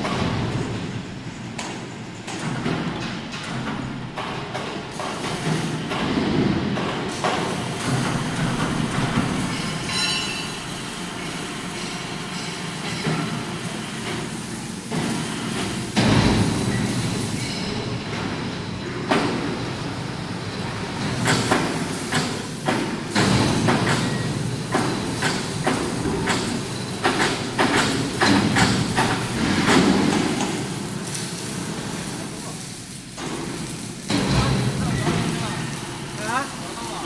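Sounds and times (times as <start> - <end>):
crane and machinery rumble: 0.0 - 37.0
metallic knocks and clanks: 1.6 - 10.8.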